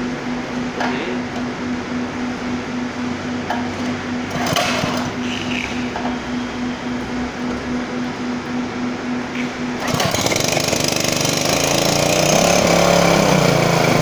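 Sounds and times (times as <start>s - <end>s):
small petrol engine running: 4.3s - 5.4s, 9.8s - 14.0s
sprayer pump pulsing: 9.8s - 14.0s.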